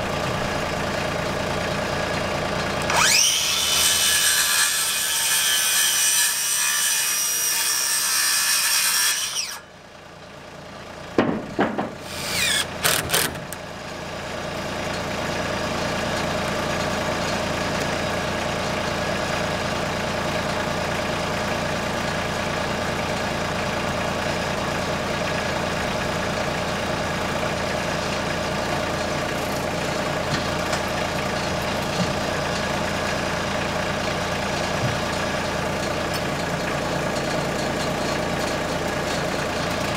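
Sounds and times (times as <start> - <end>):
tractor engine idling: 0.0 - 3.2, 9.6 - 39.9
circular saw cutting wood: 2.8 - 9.7, 12.0 - 13.6
knocks: 11.2 - 12.0.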